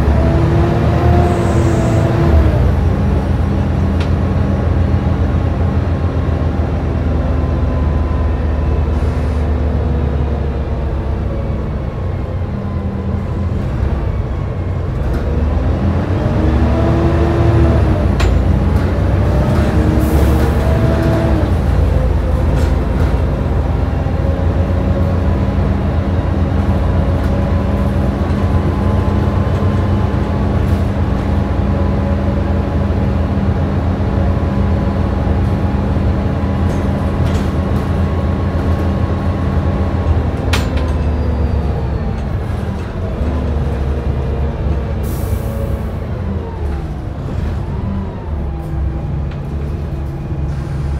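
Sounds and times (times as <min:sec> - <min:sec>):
bus diesel engine rumble: 0:00.0 - 0:50.9.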